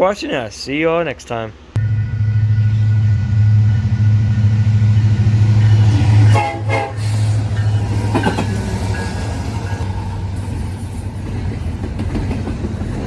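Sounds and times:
diesel locomotive engine rumble: 0:01.6 - 0:13.0
locomotive air horn blasts: 0:05.9 - 0:07.5.

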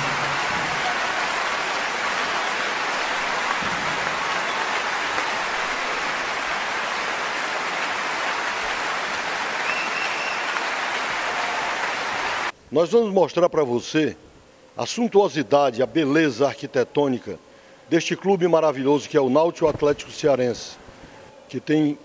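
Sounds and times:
audience applauding: 0:00.0 - 0:12.5.

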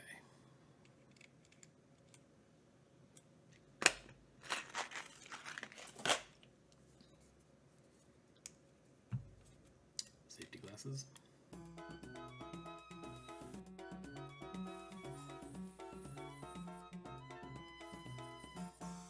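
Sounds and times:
rustling and crinkling: 0:04.4 - 0:08.4.

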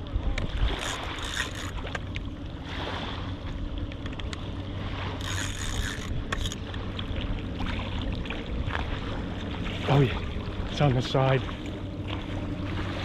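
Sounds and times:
wind: 0:00.0 - 0:13.0
faint clicks: 0:03.9 - 0:04.4.

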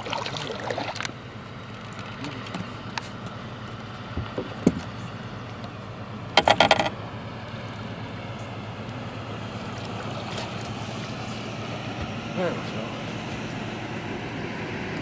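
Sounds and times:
fish thrashing and splashing: 0:00.0 - 0:02.8.

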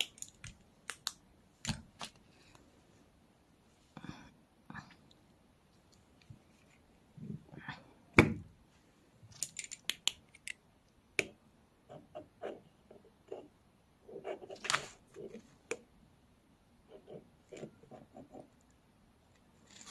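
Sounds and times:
crisp clicks: 0:00.0 - 0:02.2.

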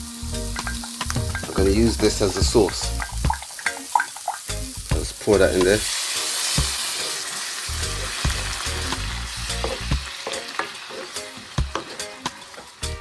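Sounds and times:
food sizzling in wok: 0:00.0 - 0:13.0
liquid pouring into wok: 0:00.6 - 0:04.6
wooden spoon scraping pan: 0:10.6 - 0:12.7.

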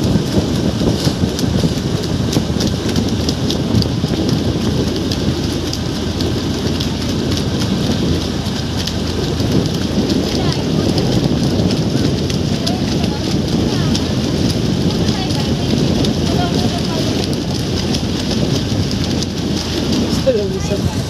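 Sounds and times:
water rushing past motorboat: 0:00.0 - 0:21.0
wind buffeting the microphone: 0:00.0 - 0:21.0.

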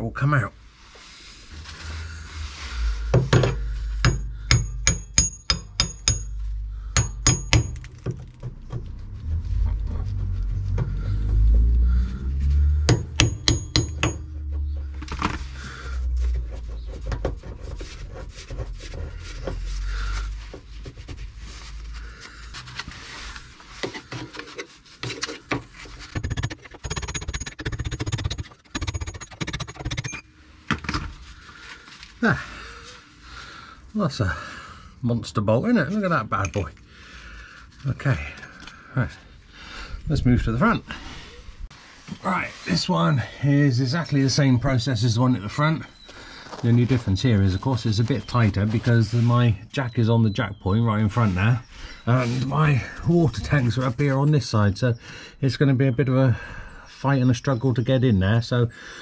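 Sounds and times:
hammer striking metal: 0:03.2 - 0:07.9, 0:12.9 - 0:14.4.

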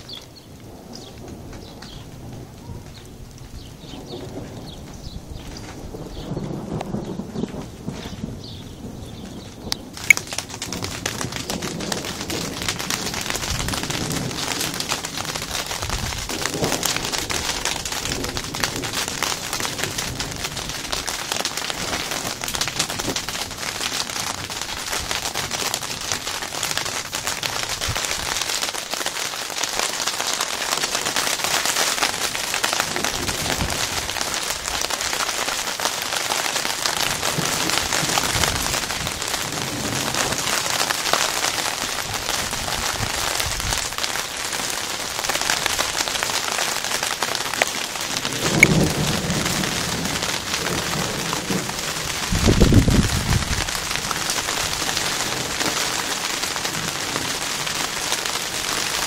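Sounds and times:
low rumble of thunder: 0:00.0 - 0:28.4, 0:32.1 - 0:34.9, 0:36.9 - 0:40.9, 0:48.0 - 0:59.0
heavy rain pattering: 0:00.0 - 0:59.0.

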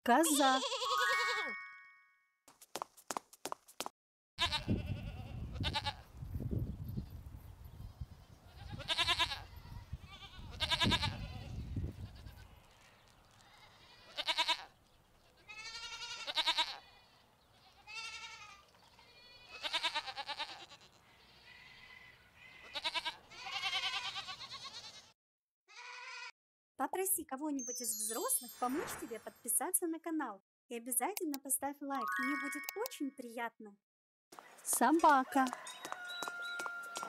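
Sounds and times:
goat bleating: 0:00.3 - 0:01.4, 0:04.4 - 0:06.0, 0:08.5 - 0:12.8, 0:13.4 - 0:26.3.

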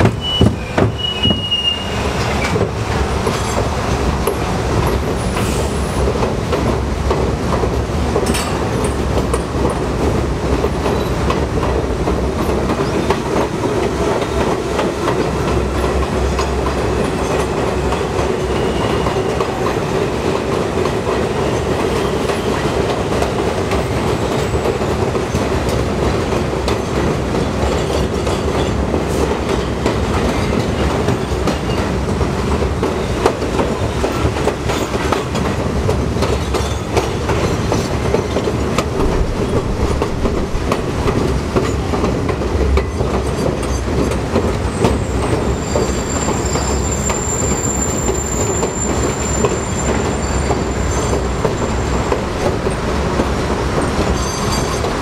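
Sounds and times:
subway train rumble: 0:00.0 - 0:55.0
high wheel squeal: 0:00.2 - 0:02.5, 0:44.7 - 0:52.1.

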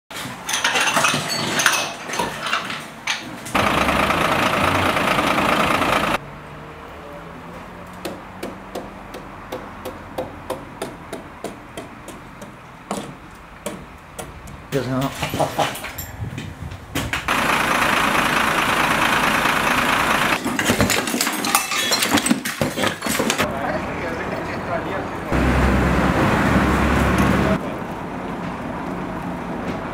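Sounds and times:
fire engine motor running: 0:03.5 - 0:06.2, 0:17.2 - 0:20.4
knocks and clatter: 0:20.4 - 0:23.5.

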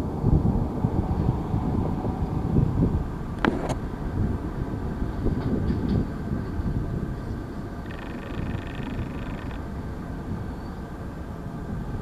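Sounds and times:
train wheels rumbling on rail: 0:00.0 - 0:12.0
high-pitched buzzing: 0:07.8 - 0:09.7.

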